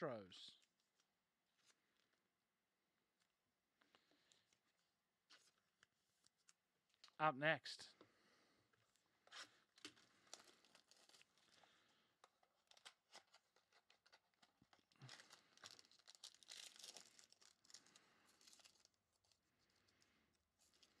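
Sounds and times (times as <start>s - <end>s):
foil wrapper crinkling and tearing: 9.3s - 11.8s, 12.4s - 20.0s.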